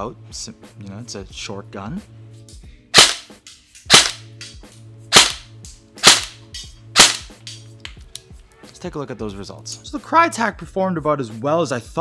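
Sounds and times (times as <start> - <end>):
lo-fi background music: 0.0 - 12.0
airsoft gun shots: 3.0 - 4.3, 5.1 - 6.4, 7.0 - 7.4.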